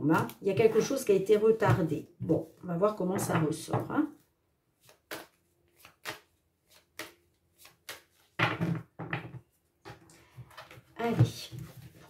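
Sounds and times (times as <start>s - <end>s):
cards being shuffled: 4.8s - 8.4s.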